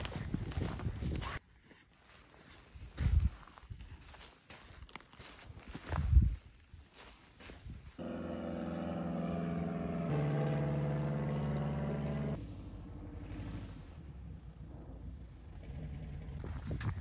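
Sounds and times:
footsteps: 0.0s - 8.0s
propeller plane engine running: 8.0s - 17.0s.

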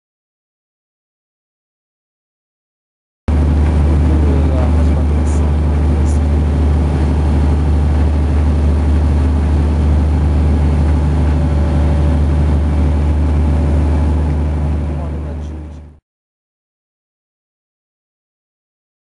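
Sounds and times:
water rushing past hull: 3.3s - 15.4s
boat engine humming: 3.3s - 16.0s.

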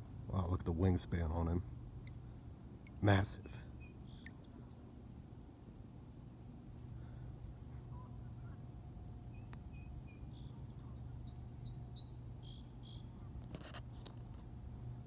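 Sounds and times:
low background rumble: 0.0s - 15.0s
bird chirping: 3.5s - 4.8s, 9.2s - 13.7s.

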